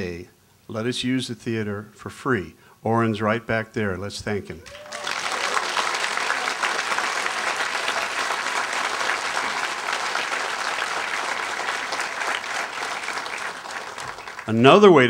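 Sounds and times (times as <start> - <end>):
audience clapping: 4.6 - 15.0.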